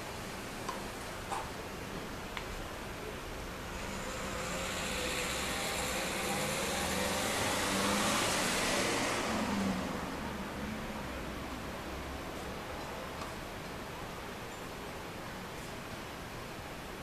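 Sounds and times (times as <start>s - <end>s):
road vehicle passing by: 3.0s - 13.6s.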